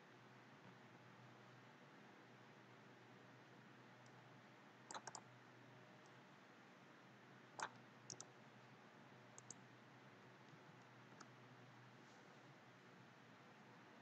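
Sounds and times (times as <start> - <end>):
low steady hum: 0.0 - 14.0
computer mouse clicks: 4.9 - 5.3, 7.6 - 8.3, 9.4 - 9.6, 10.5 - 11.3.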